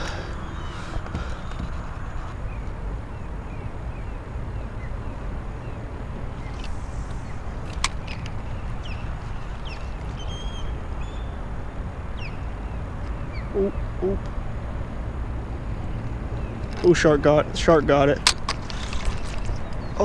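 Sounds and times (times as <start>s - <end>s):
chirping bird calls: 0.0s - 14.3s
low outdoor rumble: 0.0s - 20.0s
short low calls: 13.4s - 14.3s.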